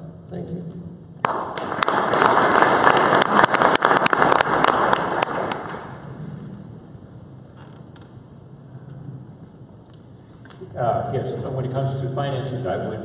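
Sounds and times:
audience applauding: 1.2s - 6.1s.

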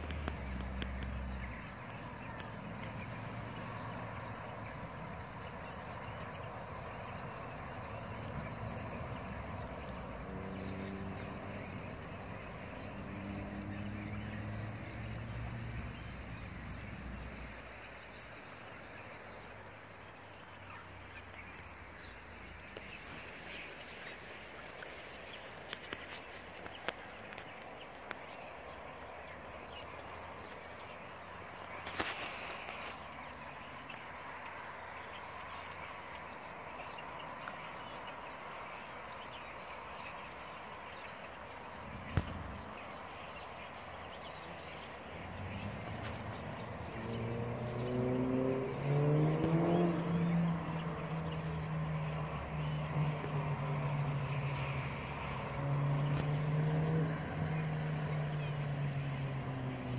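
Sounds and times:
vehicle engine accelerating: 0.0s - 6.0s, 7.1s - 17.7s, 41.3s - 59.9s.

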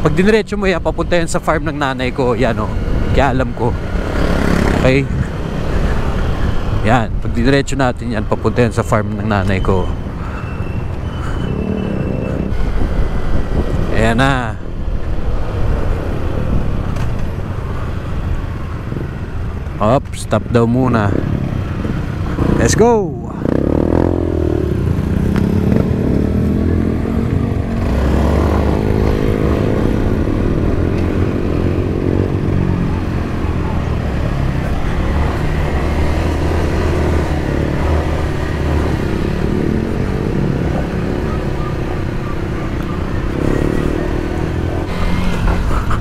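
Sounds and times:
dirt bike engine revving: 3.8s - 6.4s, 21.2s - 32.9s, 34.0s - 46.0s.

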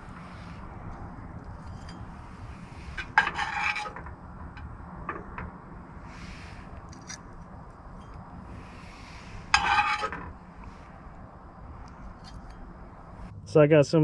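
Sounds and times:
utensil scraping plate: 0.0s - 4.1s, 8.0s - 10.9s.

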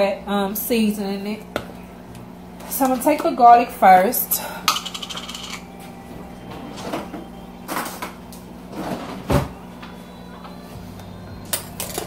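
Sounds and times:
items handled on kitchen counter: 4.7s - 5.6s.

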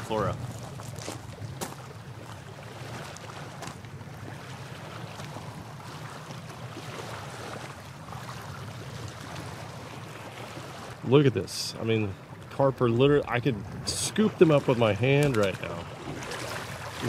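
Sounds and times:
small waves lapping on rocks: 0.0s - 17.0s
low wind rumble: 7.2s - 17.0s.

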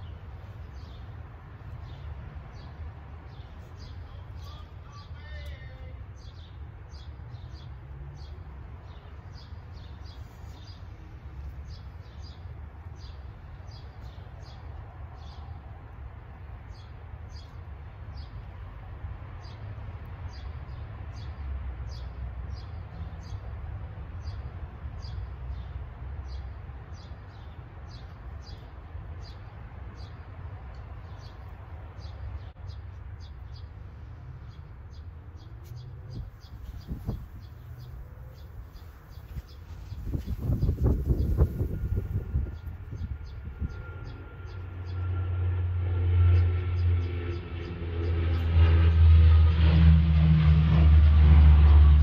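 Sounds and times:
steady low rumble: 36.0s - 52.0s.

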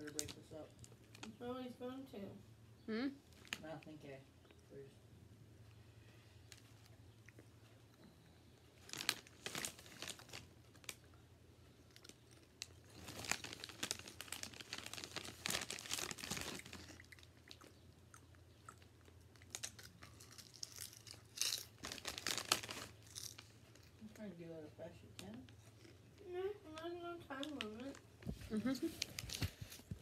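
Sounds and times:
plastic chip bag crinkling: 0.0s - 1.4s, 8.8s - 11.2s, 11.8s - 17.6s, 19.3s - 24.2s, 27.3s - 30.0s
potato chips crunching: 8.8s - 11.2s, 11.9s - 24.0s.

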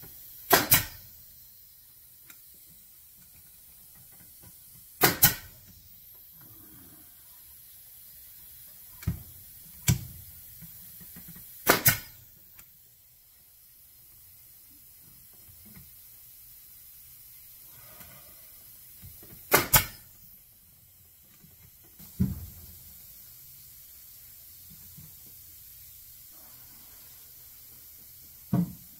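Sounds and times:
nail gun firing: 0.4s - 1.1s, 5.0s - 5.6s, 11.6s - 12.2s, 19.4s - 20.0s.

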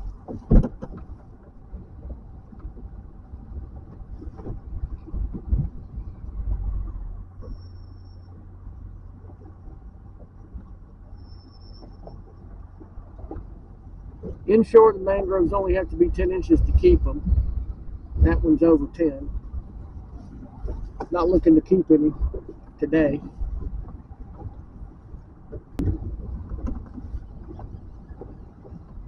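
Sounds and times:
wind buffeting microphone: 0.0s - 7.6s, 11.8s - 29.0s
knocks and thumps: 0.1s - 2.8s.

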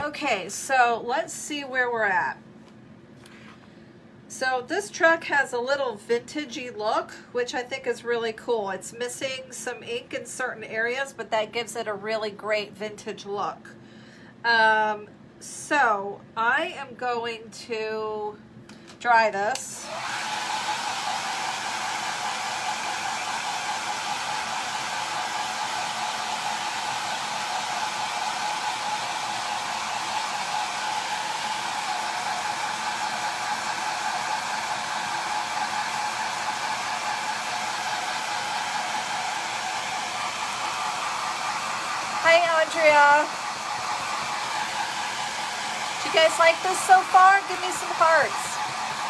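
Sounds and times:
hair dryer running: 19.5s - 49.0s.

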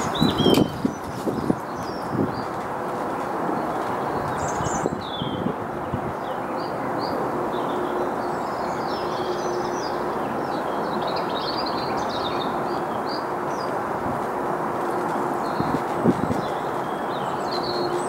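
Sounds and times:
small birds chirping: 0.0s - 2.6s, 14.8s - 18.0s
wind rushing: 0.0s - 3.6s.

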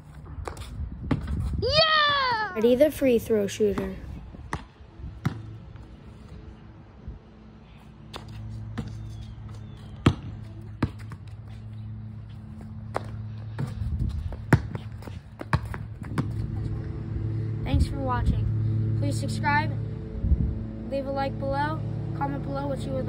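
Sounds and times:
basketball bouncing on concrete: 0.4s - 2.8s, 3.5s - 5.9s, 8.1s - 11.5s, 12.5s - 16.9s
low hum: 4.0s - 23.0s.

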